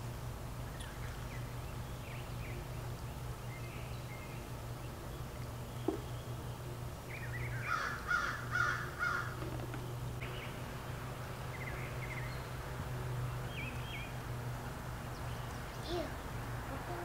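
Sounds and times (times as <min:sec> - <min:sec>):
steady low hum: 0:00.0 - 0:17.0
crow cawing: 0:07.6 - 0:09.4.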